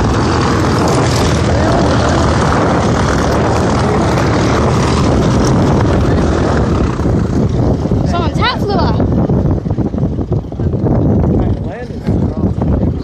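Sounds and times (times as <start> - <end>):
propeller airplane engine roar: 0.0 - 13.0.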